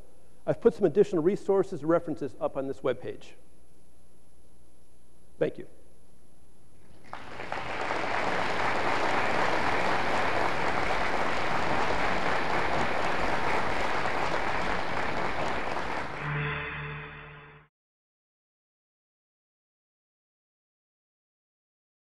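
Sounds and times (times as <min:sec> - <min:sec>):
audience applauding: 0:06.9 - 0:16.3
short burst of music: 0:16.2 - 0:17.7.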